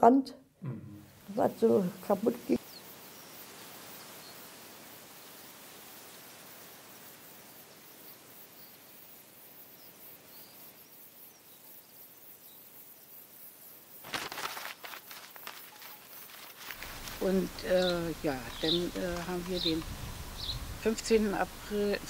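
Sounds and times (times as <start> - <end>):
faint outdoor hiss: 0.0 - 22.0
sharp crackling clicks: 14.1 - 20.6.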